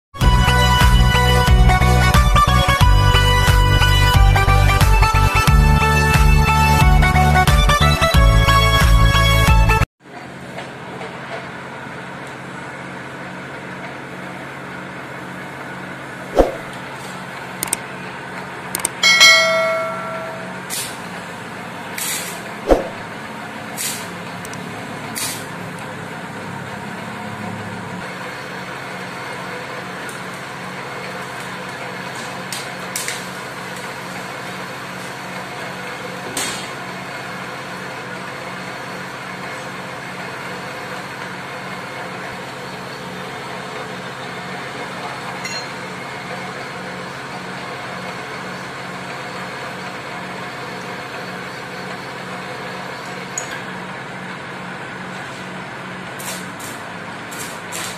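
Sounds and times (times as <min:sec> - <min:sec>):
sharp clicks: 0:17.6 - 0:17.8, 0:18.8 - 0:19.0.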